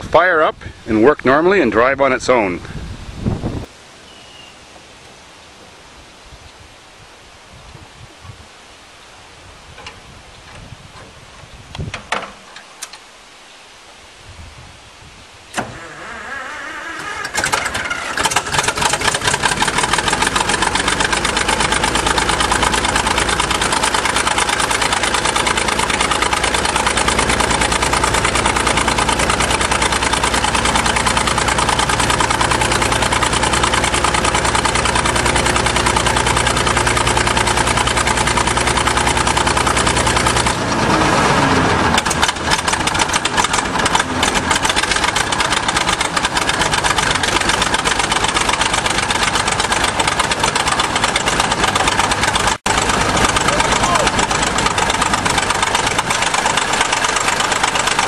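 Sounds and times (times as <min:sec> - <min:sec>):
diesel dozer engine running: 0:15.6 - 0:58.0
engine knocks: 0:17.0 - 0:58.0.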